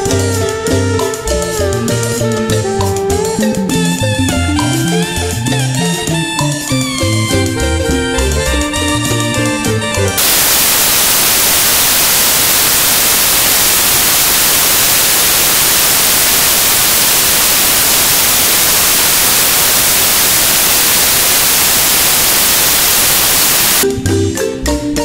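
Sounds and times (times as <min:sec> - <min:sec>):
static hiss: 0:08.2 - 0:23.8.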